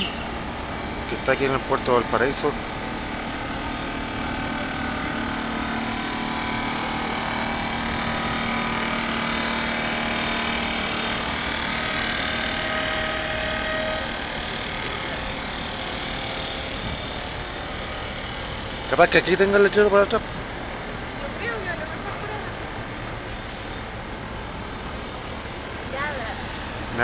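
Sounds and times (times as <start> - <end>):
low held tone: 0.0 - 1.3, 4.2 - 16.8
machinery humming: 0.0 - 27.0
higher tone: 7.7 - 16.3.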